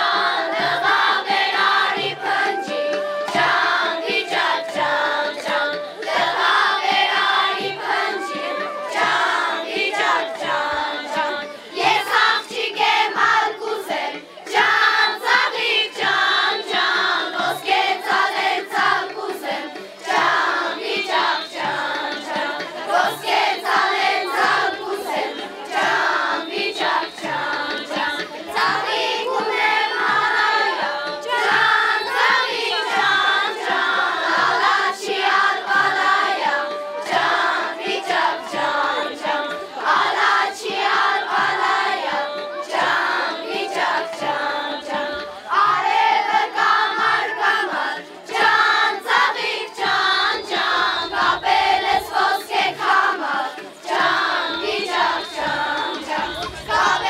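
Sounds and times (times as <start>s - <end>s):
girls singing in chorus: 0.0s - 57.0s.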